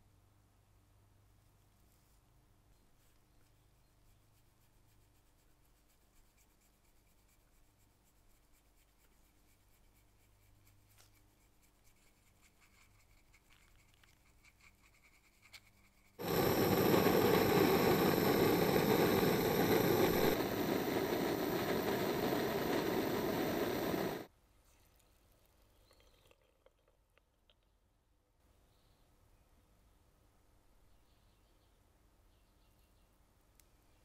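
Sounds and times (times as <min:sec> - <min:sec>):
brush scratching metal: 0:04.7 - 0:16.2
gas torch flame hissing: 0:16.2 - 0:24.3.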